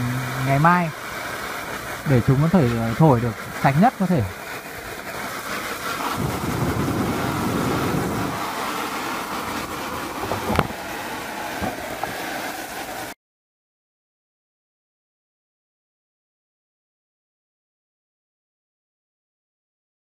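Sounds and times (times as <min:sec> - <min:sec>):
hose water jet spraying: 0:00.0 - 0:13.2.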